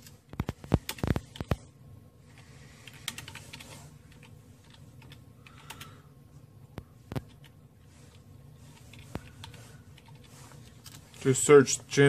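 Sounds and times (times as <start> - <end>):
keyboard typing: 0.0 - 1.7, 2.3 - 6.0, 7.1 - 11.2.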